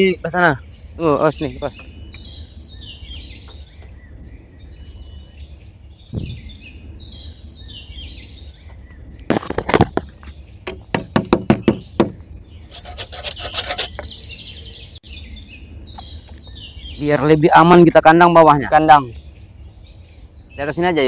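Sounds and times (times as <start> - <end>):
birds chirping: 0.0 - 21.0
loud clattering knocks: 10.7 - 12.2.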